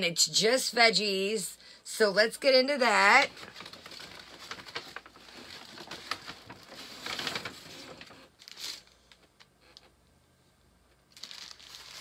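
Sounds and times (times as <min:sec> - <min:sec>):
paper bag rustling and crinkling: 0:03.1 - 0:09.3, 0:11.1 - 0:12.0.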